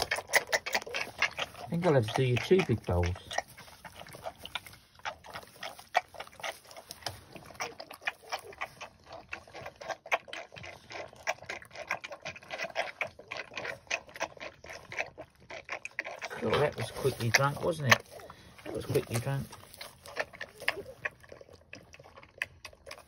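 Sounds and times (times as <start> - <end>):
piglets slurping milk from metal bowl: 0.0 - 23.0.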